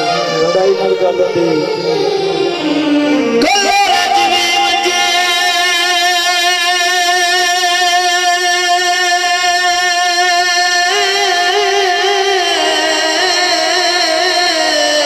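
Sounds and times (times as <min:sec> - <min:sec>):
man singing through a pa: 0:03.3 - 0:15.0.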